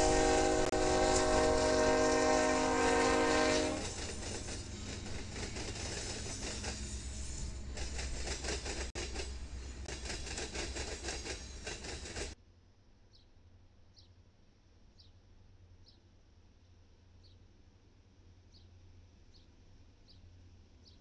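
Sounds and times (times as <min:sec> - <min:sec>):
locomotive air horn: 0:00.0 - 0:04.0
diesel locomotives rumbling: 0:00.0 - 0:12.4
train wheels clattering on rail: 0:00.0 - 0:12.4.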